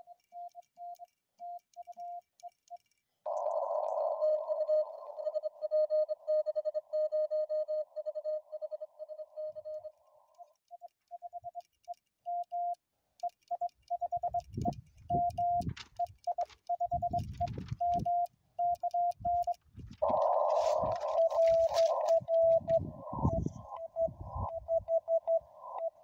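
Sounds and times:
morse code tones: 13.5s - 26.0s
radio hiss burst: 20.0s - 22.6s.

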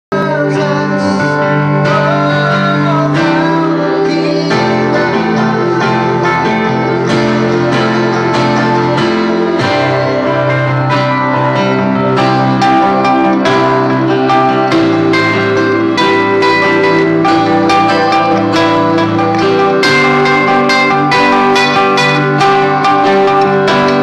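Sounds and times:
mandolin strumming chords: 1.4s - 24.0s
long held low instrument notes: 4.9s - 24.0s.

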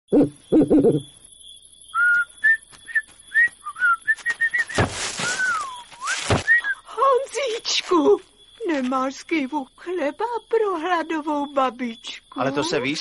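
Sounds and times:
person whistling a tune: 1.9s - 6.9s.

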